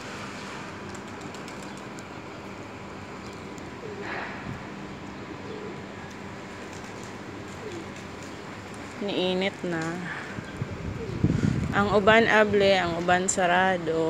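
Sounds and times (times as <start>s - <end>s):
steady background hum: 0.0s - 14.0s
pigeons cooing: 3.2s - 8.6s, 10.3s - 11.4s.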